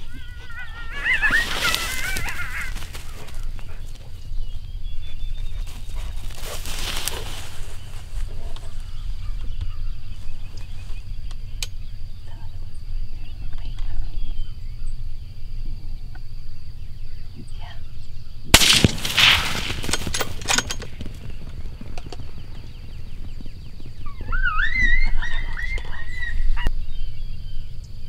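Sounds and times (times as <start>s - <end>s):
wind rumble: 0.0s - 28.0s
rifle shot: 18.6s - 21.1s.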